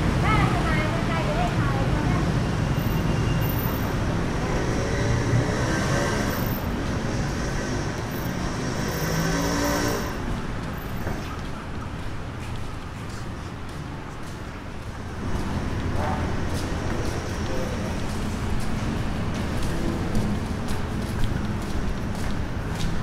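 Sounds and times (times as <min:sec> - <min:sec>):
busy street traffic: 0:00.0 - 0:23.0
vehicle engine passing close by: 0:04.1 - 0:10.2.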